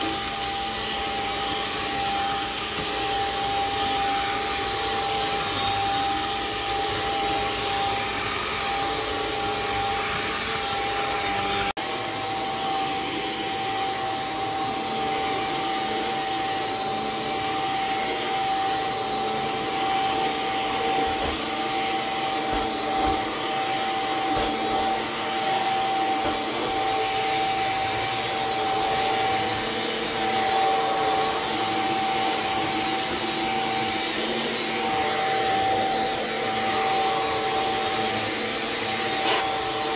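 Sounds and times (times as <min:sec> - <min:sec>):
stick vacuum running: 0:00.0 - 0:39.9.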